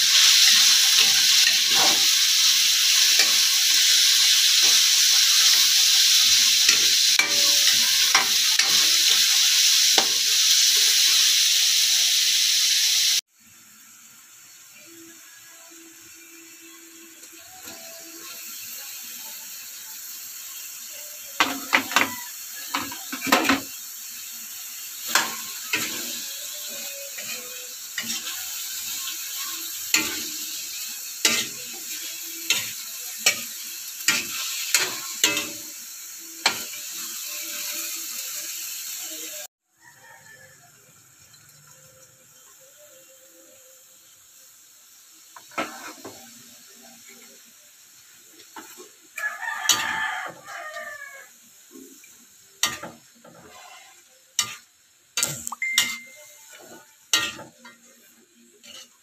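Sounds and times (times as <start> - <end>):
metal spatula scraping wok: 0.0 - 11.4, 24.9 - 35.8, 52.6 - 59.0
food sizzling in a wok: 0.0 - 59.0.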